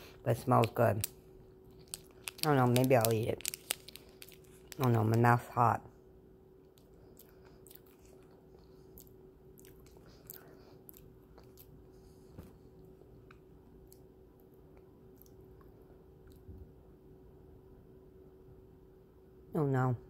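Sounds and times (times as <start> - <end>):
faint steady hum: 0.0 - 20.0
snack chewing crunches: 0.6 - 5.2, 6.7 - 11.9.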